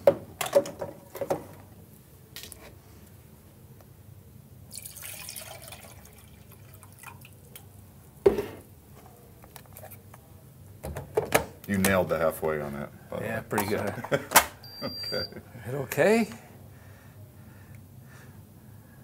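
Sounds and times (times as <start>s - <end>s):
water pouring into plastic container: 4.7s - 7.4s.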